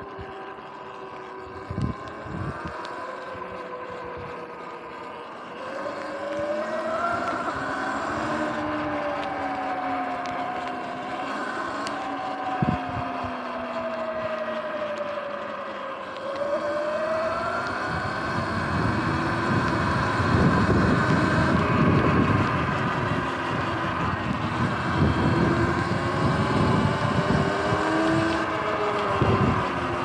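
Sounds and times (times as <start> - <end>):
electric motor whining: 0.0 - 30.0
wind on microphone: 1.5 - 2.8, 12.4 - 13.3, 17.0 - 30.0.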